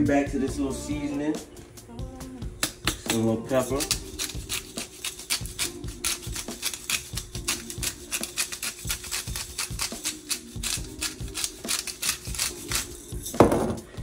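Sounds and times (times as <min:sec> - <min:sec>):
pepper grinder clicking: 0:02.9 - 0:12.9.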